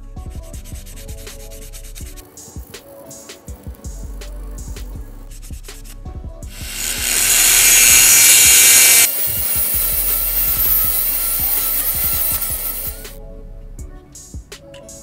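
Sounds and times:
drill grinding into metal: 0:06.6 - 0:13.2
faint drill whine: 0:06.6 - 0:13.2.

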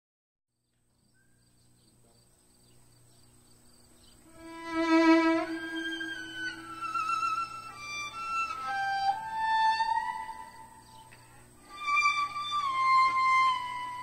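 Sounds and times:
background music with held notes: 0:04.3 - 0:14.0.

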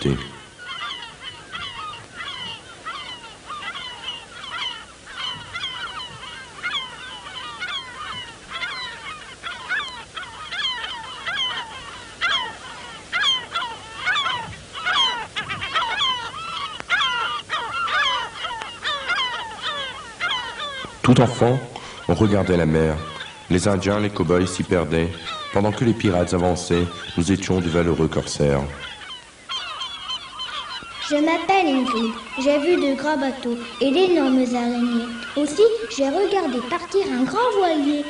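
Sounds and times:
gulls calling: 0:00.0 - 0:38.0.

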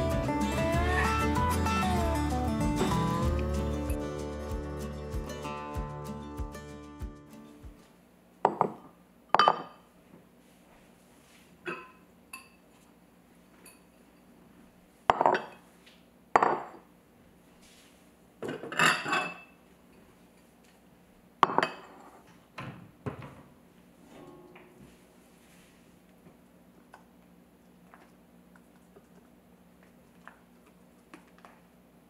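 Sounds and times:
ceramic bowls clinking on countertop: 0:08.4 - 0:09.8, 0:11.6 - 0:12.6, 0:15.1 - 0:15.6, 0:16.4 - 0:16.8, 0:18.4 - 0:19.5, 0:21.4 - 0:22.1.

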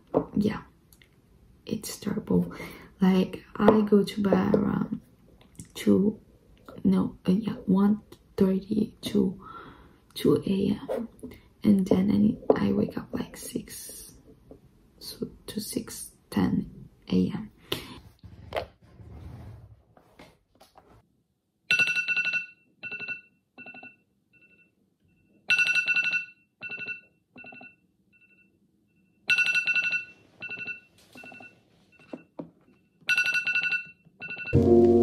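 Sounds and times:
phone alarm chiming melody: 0:33.1 - 0:35.0.

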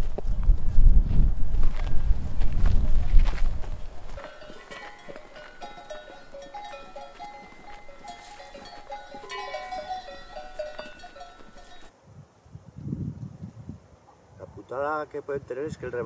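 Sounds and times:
goat bells clanking: 0:04.1 - 0:11.9.

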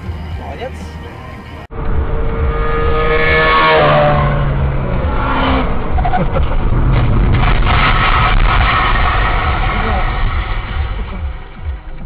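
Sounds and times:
motorcycle engine whining: 0:00.0 - 0:08.2
car road rumble: 0:00.0 - 0:12.0.

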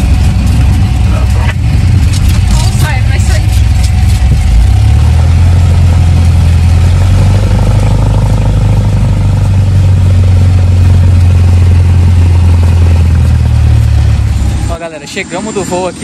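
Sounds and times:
propeller plane engine droning: 0:00.0 - 0:16.0.

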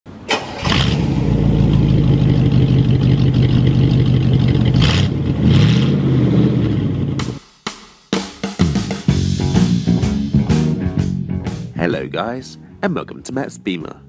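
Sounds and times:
car engine idling and revving: 0:00.3 - 0:07.4.

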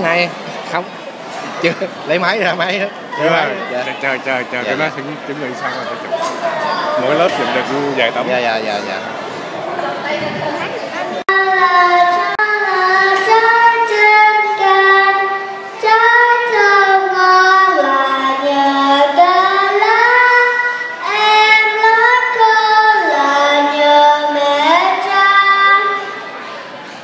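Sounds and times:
children singing: 0:10.2 - 0:26.4.

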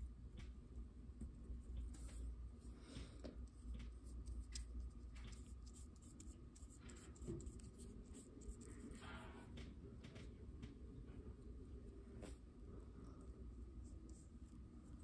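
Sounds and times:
paintbrush scratching on paper: 0:03.4 - 0:09.3, 0:13.8 - 0:15.0.

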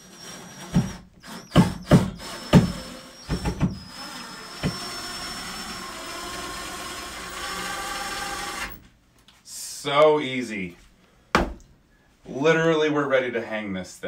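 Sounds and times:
cordless drill whining: 0:00.0 - 0:08.8.

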